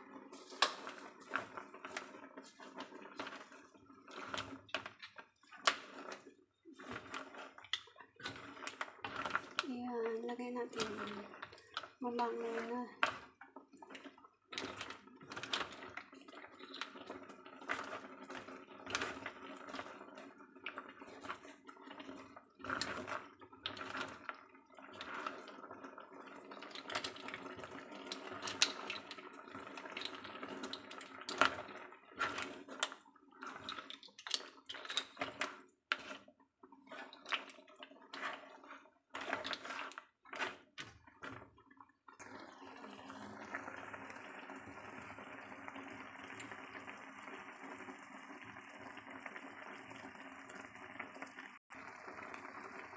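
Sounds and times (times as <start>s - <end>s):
mussel shells clattering in pan: 26.4s - 41.5s.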